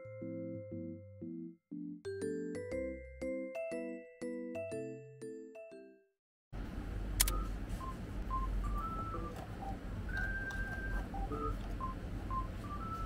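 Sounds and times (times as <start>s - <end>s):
slow melody of pure tones: 0.0s - 4.1s, 7.3s - 13.0s
room hum: 6.6s - 13.0s
sharp click: 7.2s - 7.4s.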